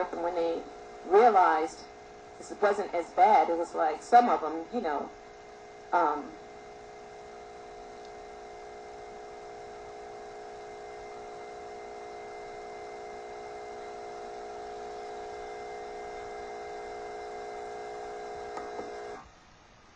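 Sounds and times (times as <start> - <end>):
electronic hum with held tones: 0.0 - 19.9.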